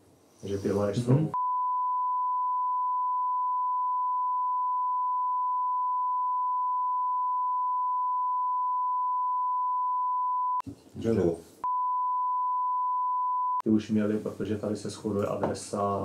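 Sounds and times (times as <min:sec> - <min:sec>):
censor bleep: 0:01.4 - 0:10.6, 0:11.6 - 0:13.6.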